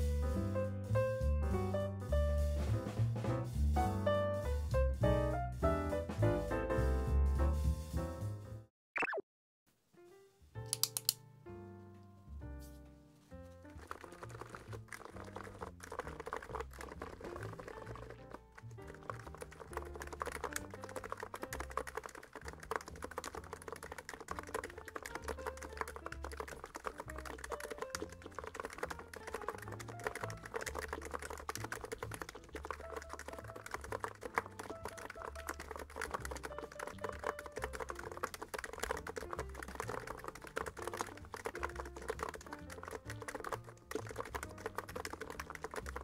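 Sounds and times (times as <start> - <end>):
soft background music: 0.0 - 8.7, 9.9 - 46.0
fast typing on keyboard: 13.6 - 46.0.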